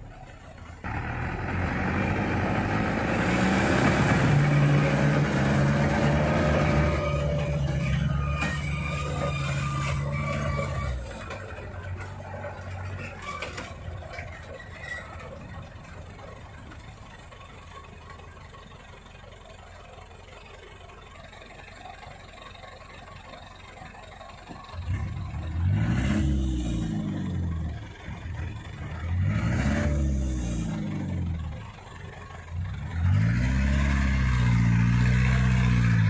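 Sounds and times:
truck engine revving: 0.8 - 16.8, 24.8 - 36.0.

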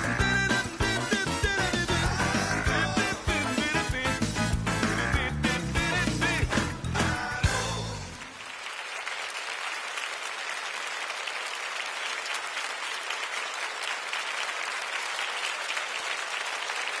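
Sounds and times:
audience applauding: 6.5 - 17.0.

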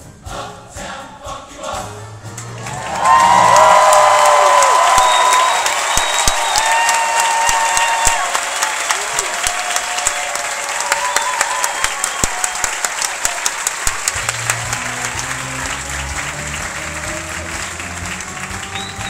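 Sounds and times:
audience applauding: 2.5 - 19.0
sharp nearby claps: 3.9 - 19.0.

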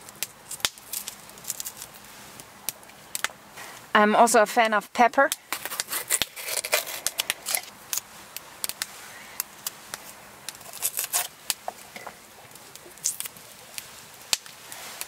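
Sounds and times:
knife slicing pepper: 5.6 - 7.6.

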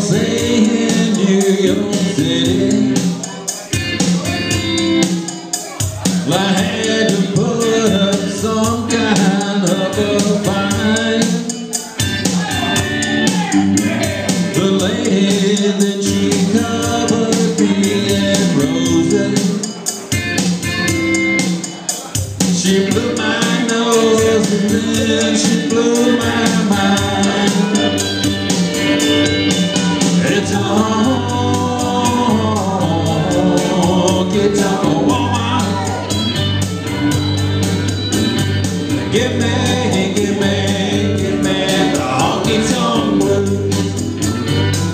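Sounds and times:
man singing into microphone: 0.0 - 3.6, 6.0 - 19.8, 22.4 - 28.3, 29.4 - 36.2, 39.0 - 44.1
music with steady drum beat: 0.0 - 44.9.

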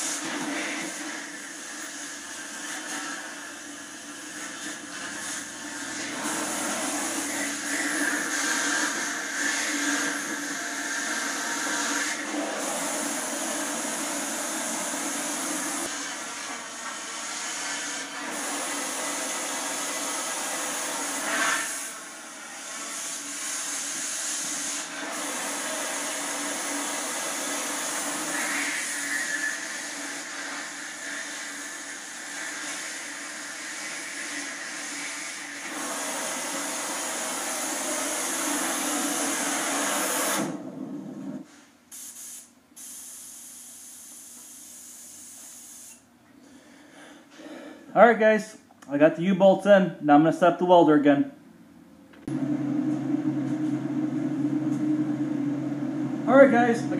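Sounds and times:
cutting torch hissing: 0.0 - 40.6, 42.0 - 46.0.

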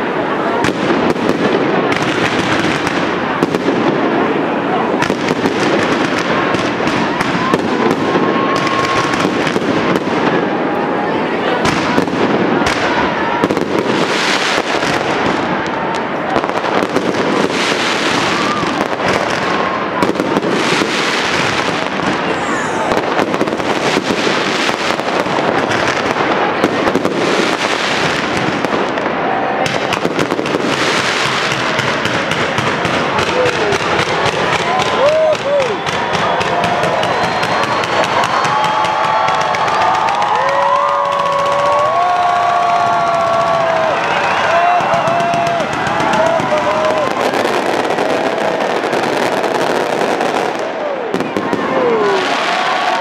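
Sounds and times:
fireworks bangs: 0.0 - 53.0
fireworks crackling: 0.0 - 53.0
firework whistle: 33.8 - 40.0.

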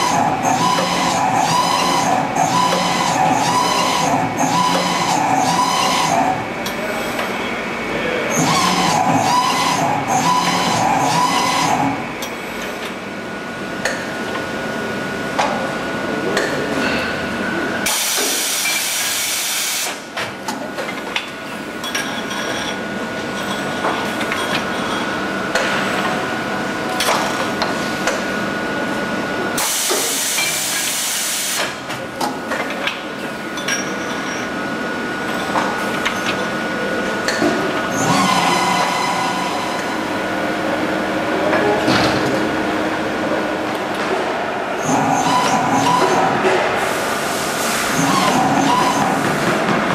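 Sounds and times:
steady machine noise: 0.0 - 20.0, 34.5 - 49.9.

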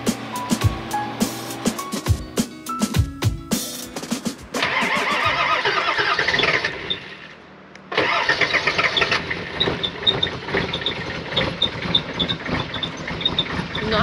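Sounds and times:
diesel engine idling: 4.6 - 14.0
diesel engine starting: 4.6 - 14.0.

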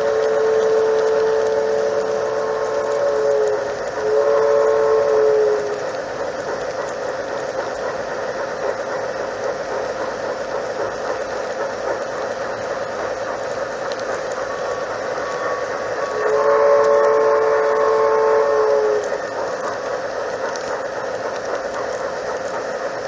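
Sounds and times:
two-note locomotive whistle: 0.0 - 5.8, 14.4 - 19.4
model train rolling on rails: 0.0 - 23.0.

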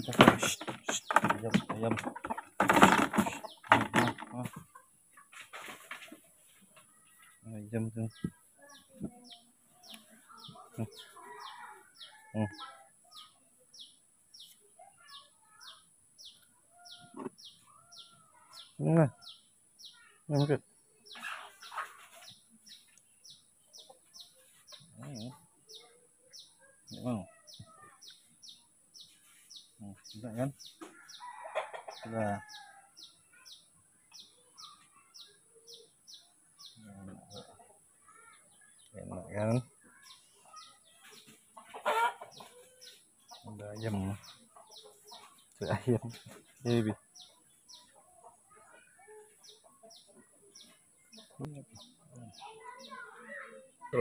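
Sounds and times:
bird chirping: 0.0 - 54.0
hen clucking: 30.8 - 32.4, 41.1 - 46.8.

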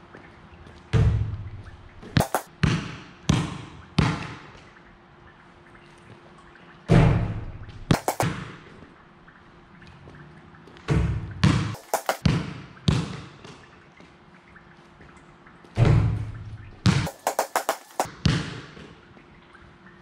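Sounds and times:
basketball bouncing on concrete: 2.1 - 4.3, 7.9 - 8.6, 10.9 - 13.3, 15.8 - 18.9
basketball hitting hoop: 2.2 - 4.3, 7.9 - 8.5, 16.8 - 18.7.

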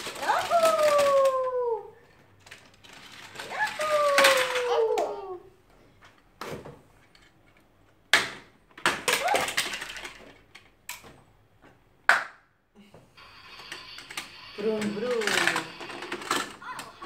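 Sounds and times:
plastic toy pieces knocking: 0.0 - 1.5, 2.4 - 5.2, 8.1 - 11.0, 13.6 - 17.0.

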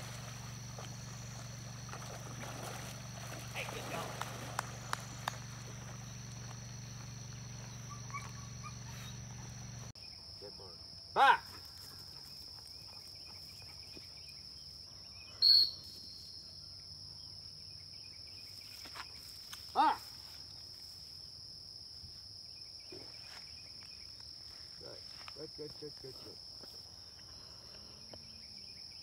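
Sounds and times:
high drone of insects: 0.0 - 29.0
person shouting command: 11.2 - 11.5, 19.8 - 20.0
loud whistle blast: 15.4 - 16.1.

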